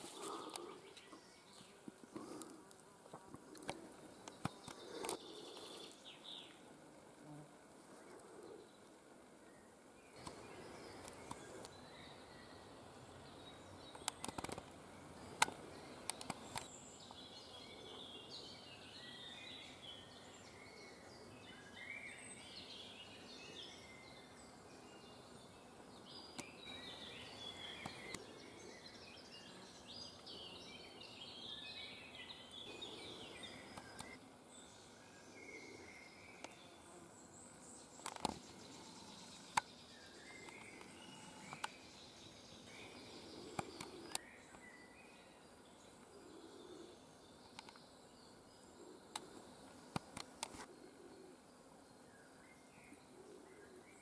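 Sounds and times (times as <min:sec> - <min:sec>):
birds chirping and singing: 0:15.6 - 0:49.8.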